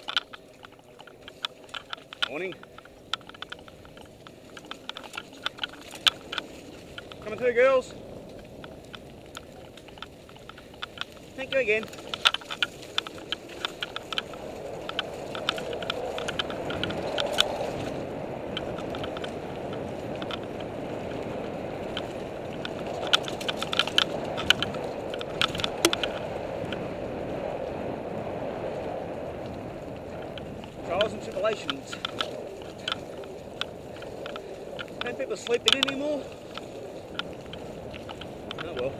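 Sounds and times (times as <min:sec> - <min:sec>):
bike clicks and rattles: 0:00.0 - 0:38.9
tyres rolling over dirt: 0:00.0 - 0:38.9.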